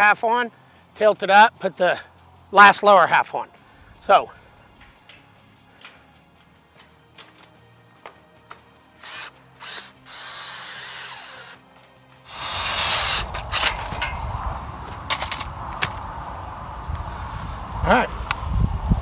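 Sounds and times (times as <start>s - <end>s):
metal clicks and clanks: 4.8s - 8.7s, 13.3s - 14.2s, 15.0s - 15.9s
cordless drill whirring: 9.0s - 11.6s, 12.3s - 13.6s.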